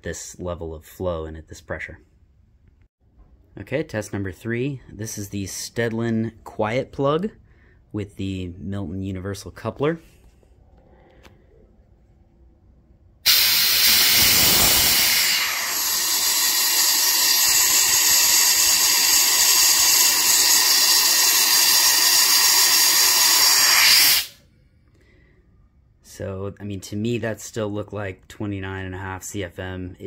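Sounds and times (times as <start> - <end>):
compressed air hissing: 13.2 - 24.4.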